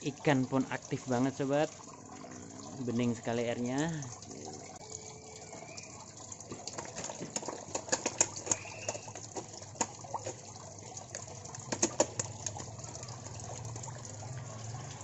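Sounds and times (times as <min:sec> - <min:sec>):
water pouring into pond: 0:00.0 - 0:15.0
fish splashing at water surface: 0:05.5 - 0:15.0.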